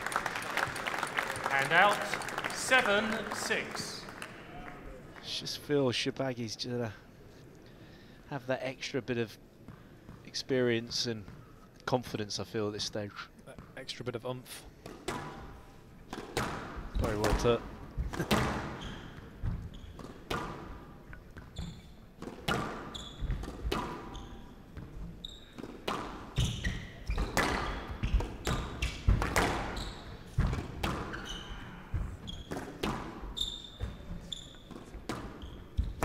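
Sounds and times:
squash ball smacking rackets and walls: 14.8s - 36.0s
shoes squeaking on wooden floor: 21.3s - 22.0s, 22.8s - 25.8s, 26.4s - 29.1s, 29.7s - 36.0s.

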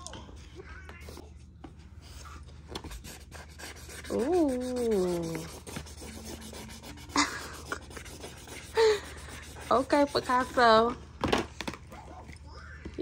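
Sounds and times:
marker scribbling on paper: 2.8s - 10.9s.

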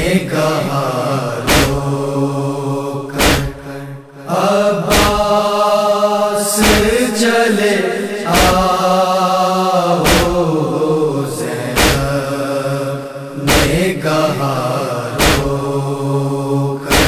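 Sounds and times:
voices chanting long notes: 0.0s - 17.0s
heavy beat: 3.2s - 3.6s.

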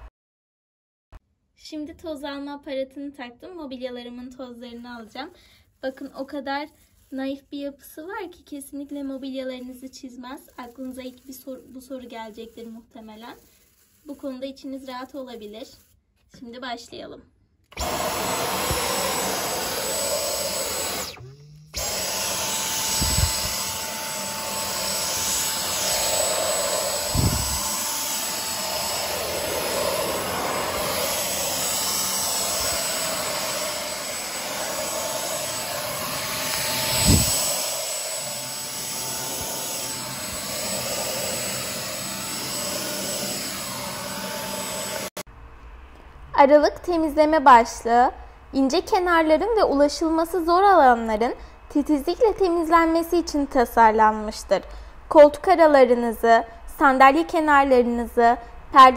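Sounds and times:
vacuum cleaner running: 17.7s - 45.2s.

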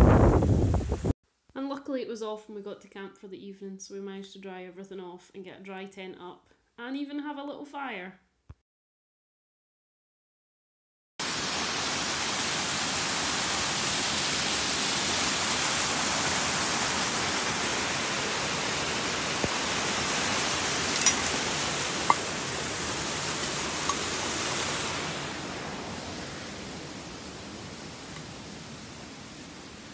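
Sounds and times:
waterfall rushing over rocks: 11.2s - 29.9s.

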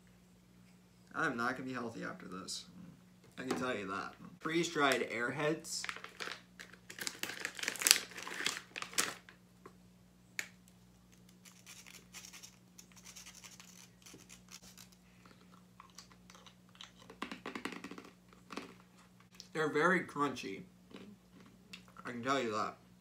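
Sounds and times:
low electrical hum: 0.0s - 23.0s
candy being broken apart: 5.8s - 9.4s
plastic bag crinkling: 5.8s - 9.4s.

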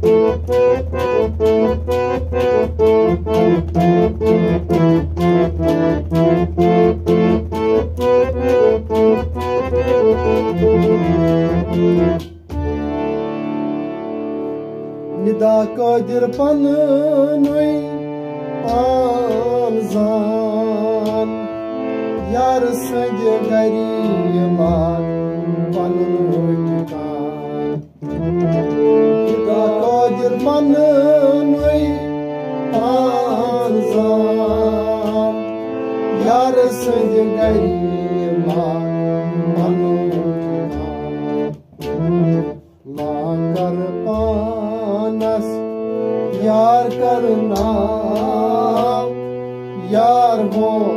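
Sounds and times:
harmonium playing chords: 0.0s - 50.9s
man singing: 15.1s - 41.3s, 42.8s - 50.9s.

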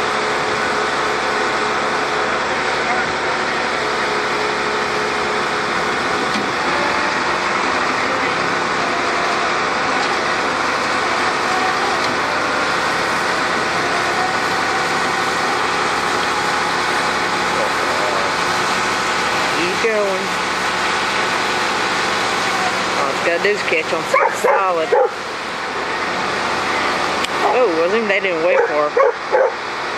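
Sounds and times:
truck engine running: 0.0s - 29.9s.

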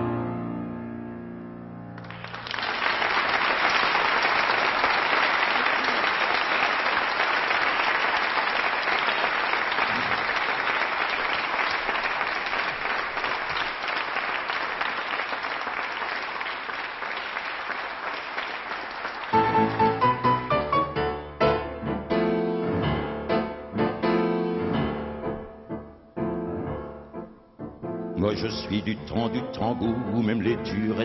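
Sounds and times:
piano chord: 0.0s - 2.2s, 19.4s - 31.0s
audience applauding: 2.0s - 21.0s.

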